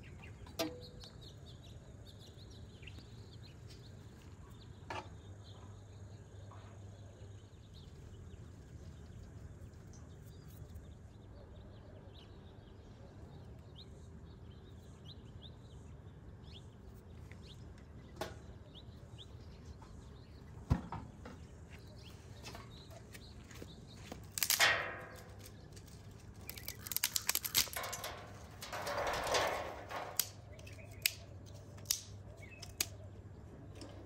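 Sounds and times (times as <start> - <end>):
dry twigs rustling and snapping: 22.5 - 33.0.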